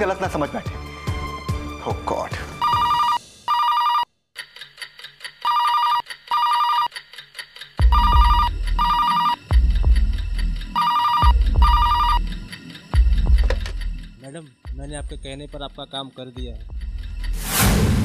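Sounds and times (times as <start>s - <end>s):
telephone ringing: 2.6s - 4.1s, 5.4s - 7.0s, 7.8s - 9.5s, 10.8s - 12.2s
deep booming film score: 16.4s - 18.0s.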